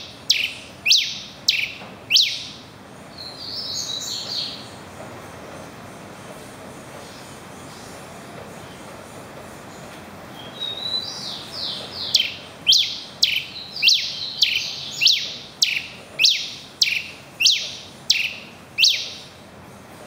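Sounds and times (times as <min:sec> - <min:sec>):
finch singing sliding whistles: 0:00.0 - 0:02.6, 0:10.4 - 0:19.3.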